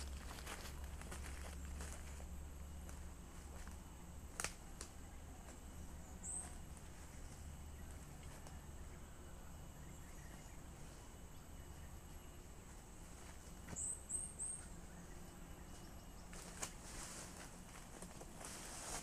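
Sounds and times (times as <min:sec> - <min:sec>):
faint high insect drone: 0:00.0 - 0:19.0
bird chirping: 0:05.8 - 0:12.7, 0:13.7 - 0:16.5.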